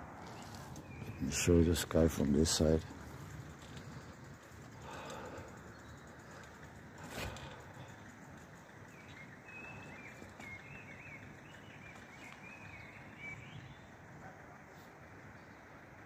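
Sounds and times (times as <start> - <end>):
faint outdoor ambience: 0.0 - 16.0
bird twittering: 3.8 - 13.9.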